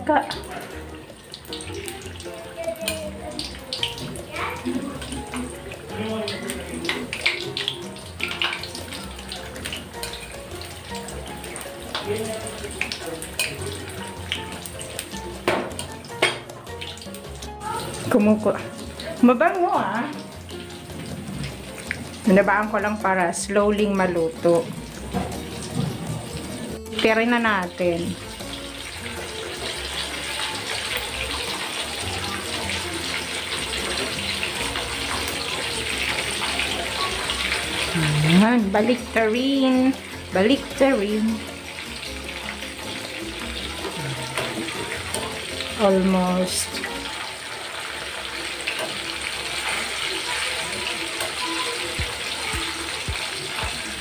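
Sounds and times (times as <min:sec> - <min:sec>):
deep-frying sizzle and crackle: 0:00.0 - 0:54.0.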